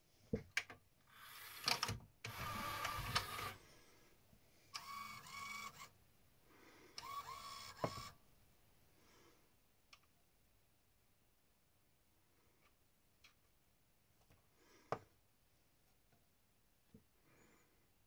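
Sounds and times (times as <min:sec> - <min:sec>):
disc-loading motor whirring: 0:01.2 - 0:03.6, 0:04.8 - 0:05.9, 0:07.0 - 0:08.1.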